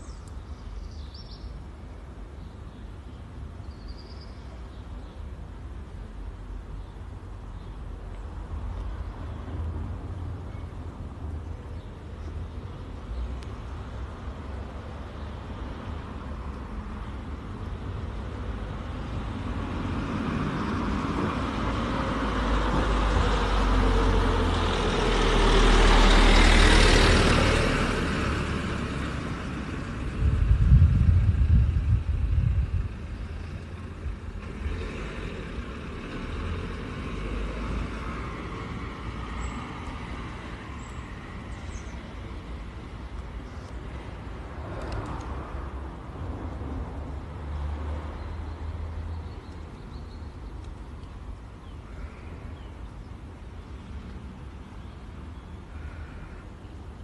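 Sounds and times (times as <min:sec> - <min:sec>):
car passing: 0:18.2 - 0:43.0, 0:43.9 - 0:49.3.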